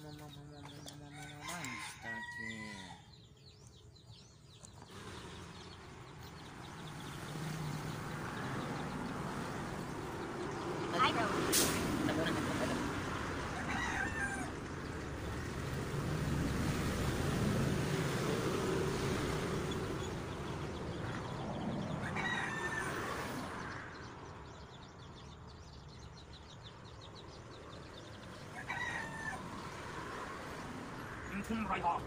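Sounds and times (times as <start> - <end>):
rooster crowing: 1.1 - 3.2, 13.4 - 14.8, 21.9 - 23.6, 28.5 - 29.7.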